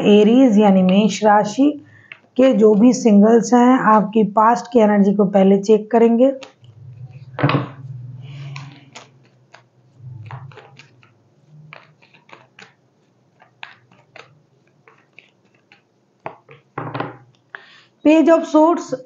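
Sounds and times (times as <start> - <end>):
cards being shuffled: 6.4 - 17.7
low hum: 6.6 - 8.6.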